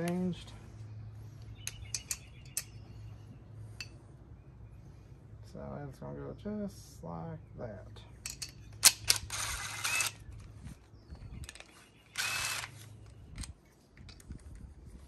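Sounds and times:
impact driver bursts: 0:09.1 - 0:10.2, 0:12.2 - 0:12.8.

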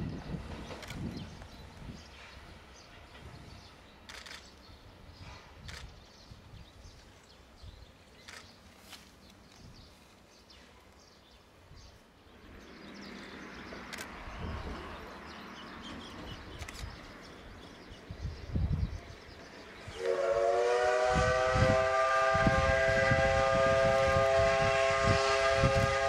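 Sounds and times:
steam locomotive hissing: 0:19.4 - 0:26.0.

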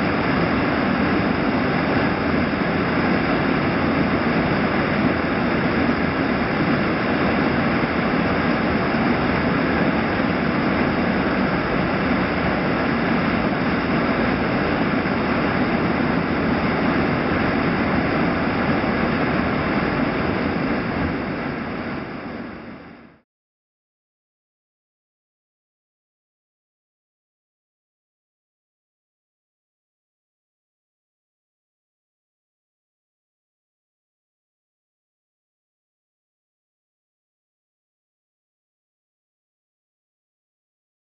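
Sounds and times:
rushing whitewater roar: 0:00.0 - 0:23.1.

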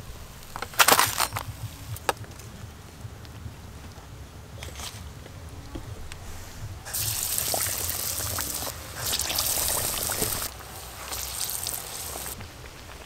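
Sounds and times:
food sizzling in hot oil: 0:06.9 - 0:12.4.

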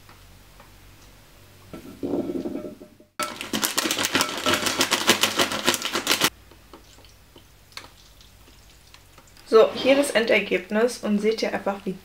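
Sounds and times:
granola clusters rattling into bowl: 0:03.2 - 0:06.3.

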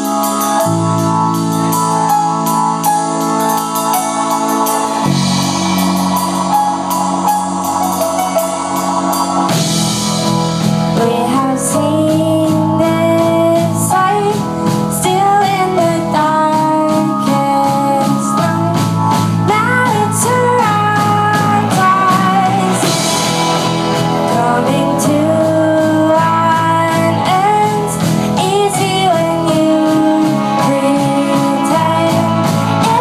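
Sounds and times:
electric guitar: 0:00.0 - 0:33.0
keyboard: 0:00.0 - 0:33.0
steady drum beat: 0:00.0 - 0:33.0
woman singing lead vocal: 0:10.9 - 0:23.4, 0:24.1 - 0:33.0.

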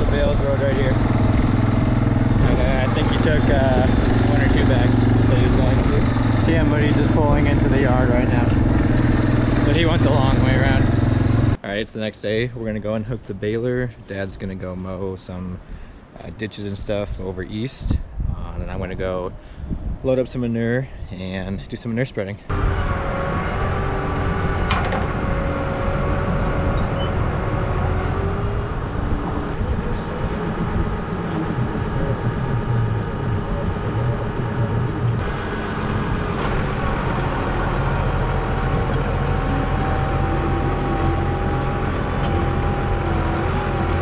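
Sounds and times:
tractor diesel engine running: 0:00.0 - 0:11.6, 0:22.5 - 0:44.0.

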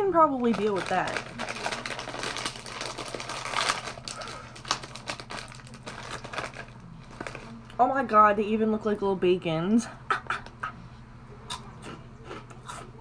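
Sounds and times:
plastic crisp packet crinkling: 0:00.1 - 0:07.8.

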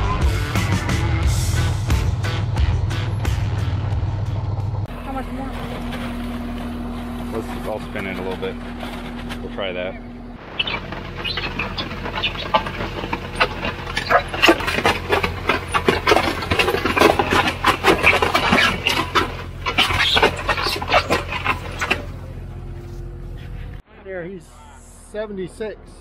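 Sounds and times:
engine humming: 0:00.0 - 0:25.2
grit rattling in concrete mixer drum: 0:04.8 - 0:22.7.

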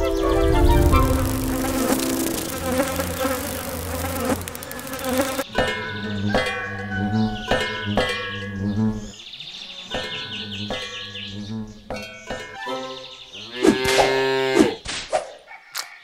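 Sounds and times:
bees buzzing: 0:00.0 - 0:05.5.

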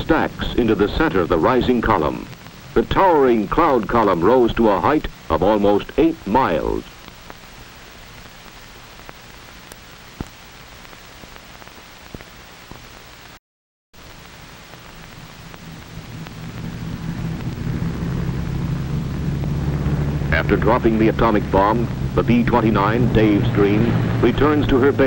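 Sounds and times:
plane piston engines droning: 0:00.0 - 0:06.8, 0:15.0 - 0:25.0
crackle clicks: 0:00.0 - 0:13.4
old film hiss: 0:00.0 - 0:13.4, 0:14.0 - 0:25.0.

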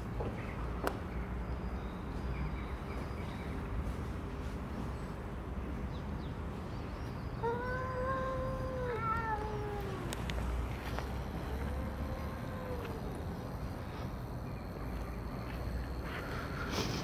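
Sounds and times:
cat meowing: 0:07.4 - 0:10.2, 0:11.5 - 0:13.1.

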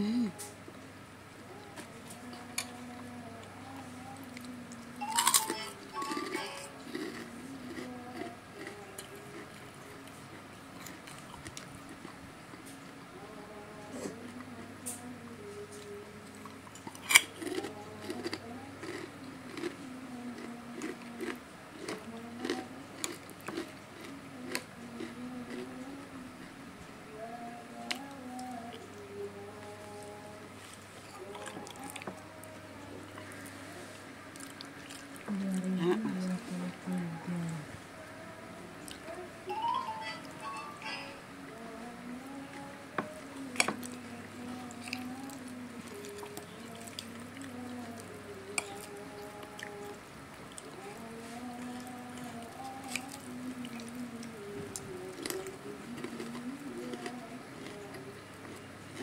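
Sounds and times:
chewing with crunches: 0:01.5 - 0:12.8, 0:15.5 - 0:26.6, 0:29.6 - 0:35.7, 0:43.3 - 0:59.0
soft background music: 0:04.9 - 0:09.6, 0:29.7 - 0:37.6, 0:38.8 - 0:50.0.

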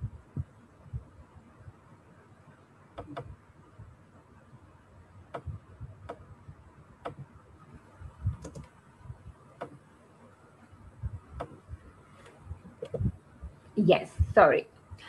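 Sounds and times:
soft low thumps: 0:00.0 - 0:01.8, 0:05.3 - 0:09.9, 0:10.8 - 0:15.0
computer keyboard clicks: 0:08.4 - 0:08.7.

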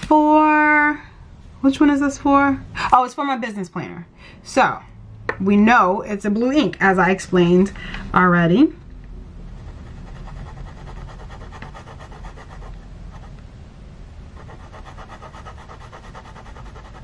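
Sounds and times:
pen nib scratching on paper: 0:09.6 - 0:13.4, 0:14.4 - 0:17.0.

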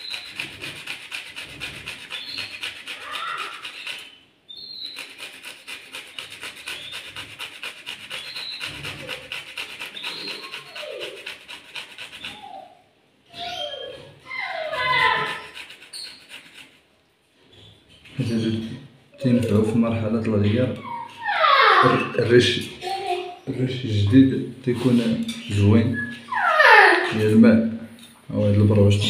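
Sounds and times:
carrot rasping on metal grater: 0:00.0 - 0:04.1, 0:04.7 - 0:12.4, 0:14.7 - 0:16.8.

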